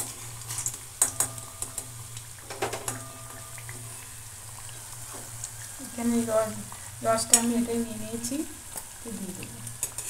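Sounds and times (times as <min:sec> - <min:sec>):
oil bubbling: 0:00.0 - 0:10.0
steady low hum: 0:00.0 - 0:10.0
metal spoon scraping metal pan: 0:09.8 - 0:10.0.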